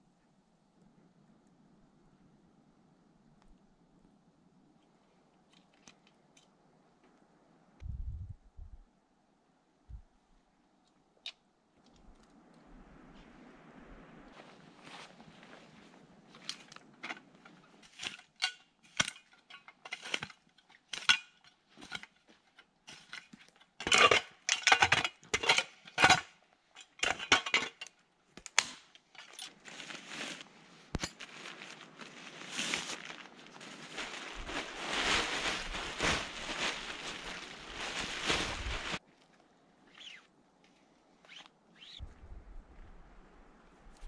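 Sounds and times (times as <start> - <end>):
tarp rustling and crackling: 12.0 - 26.2, 28.5 - 40.3
footsteps crunching in snow: 14.3 - 16.7, 29.6 - 39.0.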